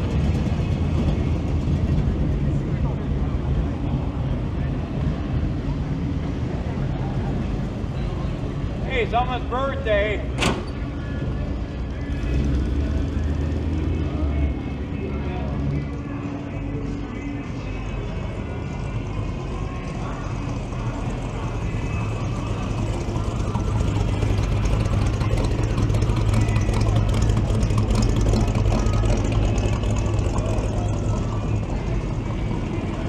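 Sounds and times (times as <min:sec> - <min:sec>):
vehicle engine driving past: 0:10.2 - 0:33.0.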